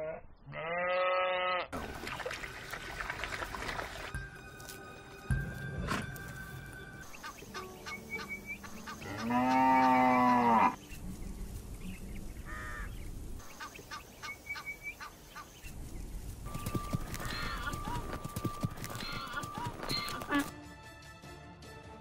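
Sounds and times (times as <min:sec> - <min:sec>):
donkey braying: 0:07.2 - 0:10.8, 0:16.6 - 0:20.5.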